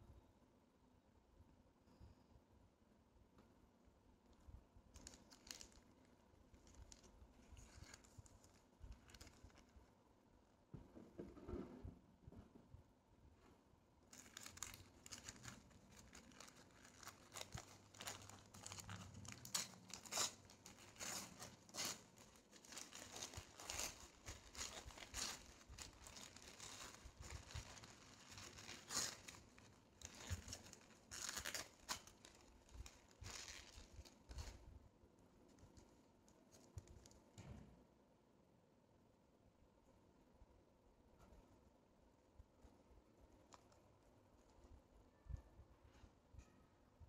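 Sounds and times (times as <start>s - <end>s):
paper wrapper crinkling and tearing: 4.9s - 9.9s, 14.1s - 34.6s.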